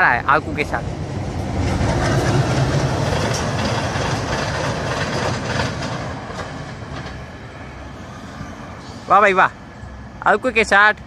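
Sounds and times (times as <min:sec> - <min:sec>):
diesel locomotive engine rumble: 0:00.0 - 0:11.0
wheels clicking over rail joints: 0:00.8 - 0:07.4.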